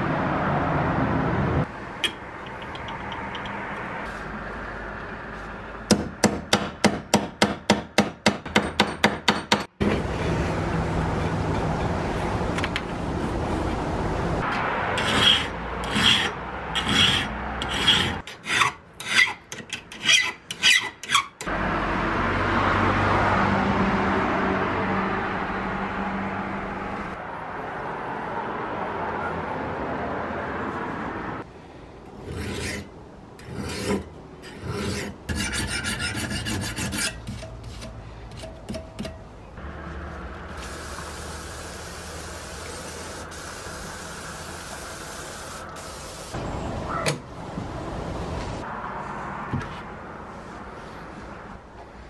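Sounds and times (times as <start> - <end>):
hand file rasping on steel: 15.0 - 21.3, 32.2 - 38.5.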